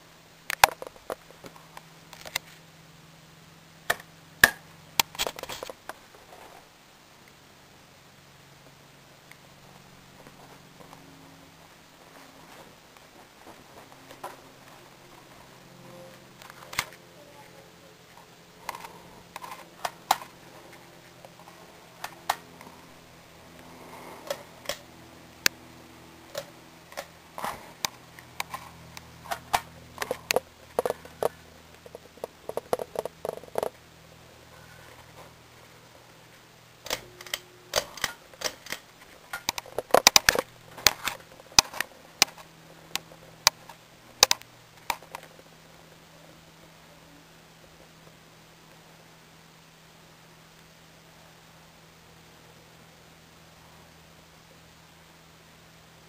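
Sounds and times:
ceiling fan motor hum: 0:00.0 - 0:56.0
sharp clicks and ticks: 0:27.8 - 0:33.8, 0:36.8 - 0:45.3.

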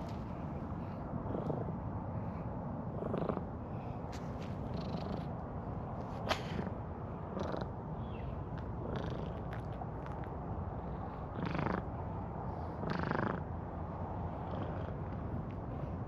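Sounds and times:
cat purring: 0:04.6 - 0:05.3, 0:08.6 - 0:10.2, 0:10.8 - 0:11.9, 0:12.8 - 0:13.4, 0:14.4 - 0:15.2.

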